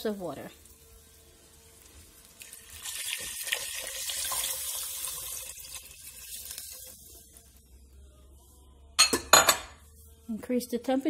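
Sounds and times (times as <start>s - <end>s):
water pouring into a pot: 2.2s - 7.6s.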